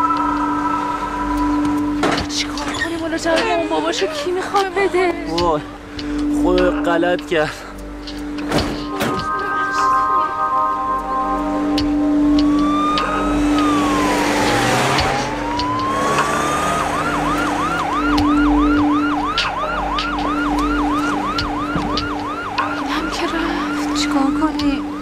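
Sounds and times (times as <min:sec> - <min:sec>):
ambulance siren wailing and yelping: 0:00.0 - 0:05.4, 0:11.4 - 0:25.0.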